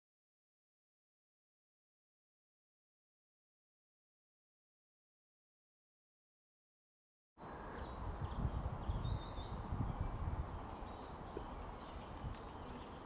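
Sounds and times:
small birds chirping: 0:07.4 - 0:13.0.

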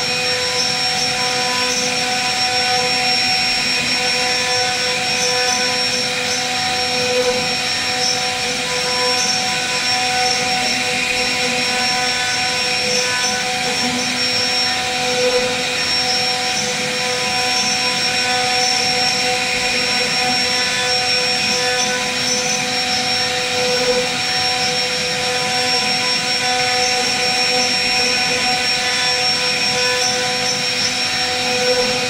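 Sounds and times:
router spindle cutting wood: 0:00.0 - 0:32.0.

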